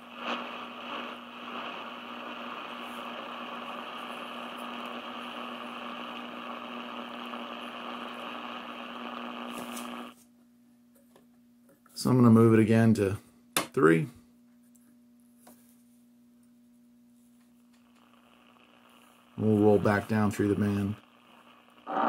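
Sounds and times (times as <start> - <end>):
radio static hiss: 0.0 - 10.2, 17.4 - 22.0.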